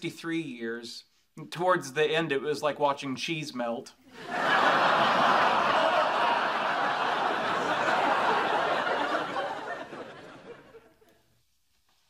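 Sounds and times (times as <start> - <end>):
studio audience laughing: 4.1 - 11.2.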